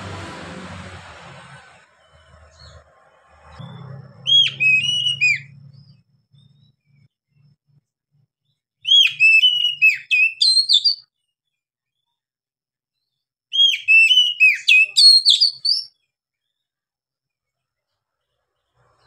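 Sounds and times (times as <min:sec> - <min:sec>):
bird singing slurred whistles: 0:04.2 - 0:07.0, 0:08.8 - 0:11.1, 0:13.5 - 0:16.0.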